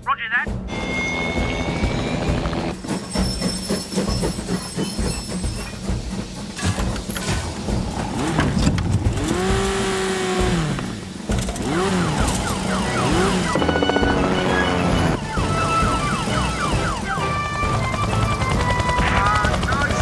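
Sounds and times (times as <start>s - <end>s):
background music: 0.0s - 20.0s
emergency siren wailing: 11.7s - 20.0s.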